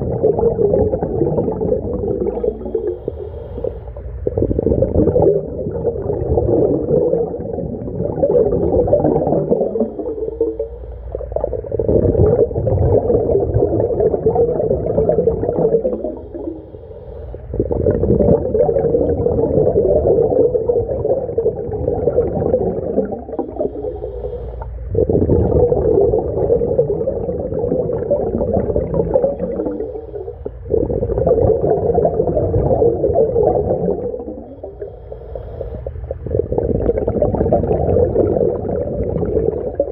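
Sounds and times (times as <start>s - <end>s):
underwater bubbles gurgling: 0.0s - 39.9s
diver inhaling through regulator: 1.8s - 5.0s, 9.1s - 12.5s, 15.6s - 18.0s, 22.9s - 25.4s, 29.3s - 31.2s, 33.9s - 37.2s.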